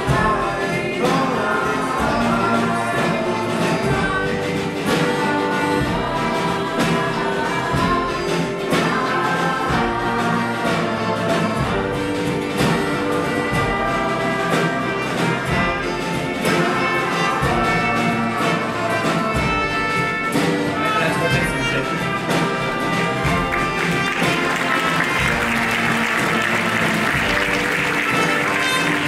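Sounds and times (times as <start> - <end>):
folk ensemble playing: 0.0 - 29.0
applause: 23.2 - 29.0.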